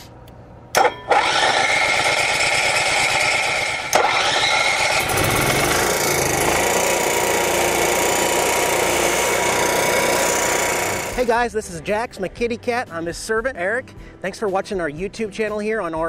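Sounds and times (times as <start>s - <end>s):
generator running: 0.7s - 11.3s
generator starter cranking: 0.7s - 11.3s.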